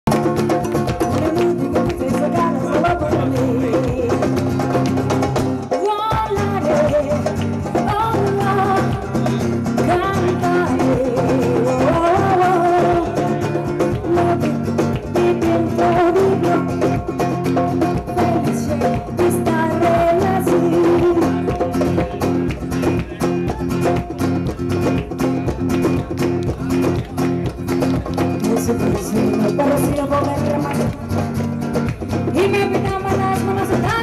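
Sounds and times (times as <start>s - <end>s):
guitars and percussion: 0.0s - 34.0s
person singing: 0.9s - 4.8s, 5.7s - 17.1s, 17.8s - 24.0s, 28.4s - 31.2s, 32.3s - 34.0s.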